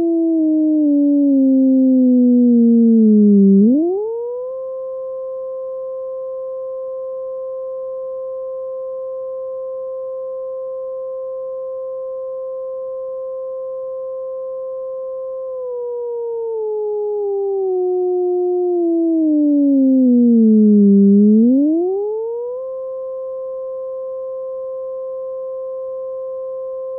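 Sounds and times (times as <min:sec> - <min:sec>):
synthesized siren tone: 0:00.0 - 0:04.8, 0:15.2 - 0:24.0.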